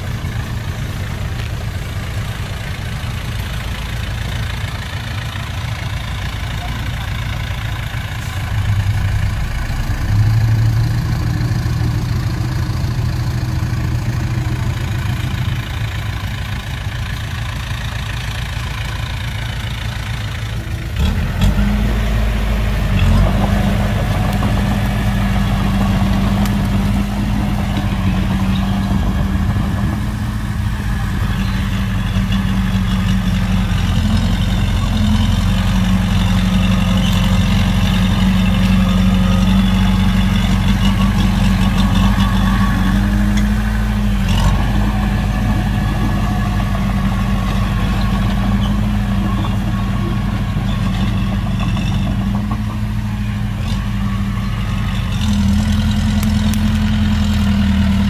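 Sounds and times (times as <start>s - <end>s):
heavy diesel engines droning: 0.0s - 58.0s.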